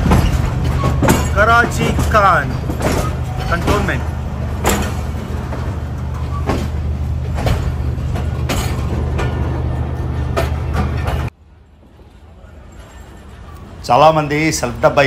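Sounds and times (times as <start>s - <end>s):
train wheels clacking: 0.0s - 11.3s
train running low drone: 0.0s - 15.0s.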